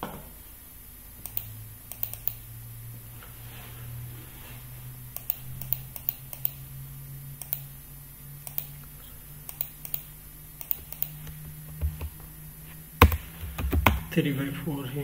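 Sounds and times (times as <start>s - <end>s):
steady low hum: 0.0s - 15.0s
keyboard and mouse clicking: 1.2s - 2.4s, 5.2s - 6.6s, 7.4s - 7.6s, 8.4s - 8.7s, 9.5s - 12.2s.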